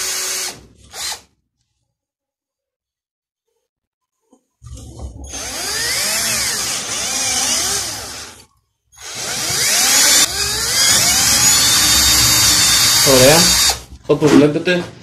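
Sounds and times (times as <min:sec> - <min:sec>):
cordless drill boring into metal: 0:00.0 - 0:01.2, 0:05.3 - 0:08.4, 0:09.0 - 0:13.8.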